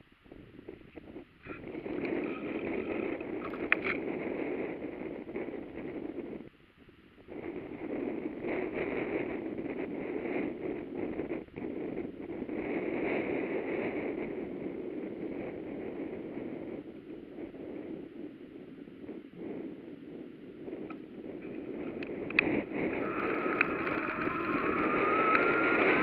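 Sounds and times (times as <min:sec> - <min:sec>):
wind rushing over microphone: 0:00.0 - 0:26.0
bicycle tyres rolling: 0:20.9 - 0:26.0.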